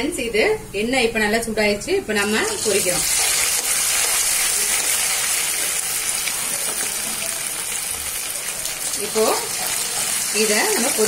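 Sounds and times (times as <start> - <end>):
chicken deep-frying in oil: 2.2 - 11.0.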